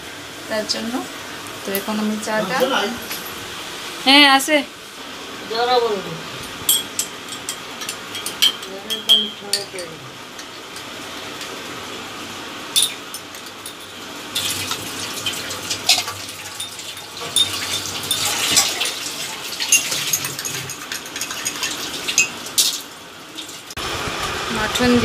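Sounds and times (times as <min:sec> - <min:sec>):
teaspoon clinking against china: 0:06.7 - 0:10.5.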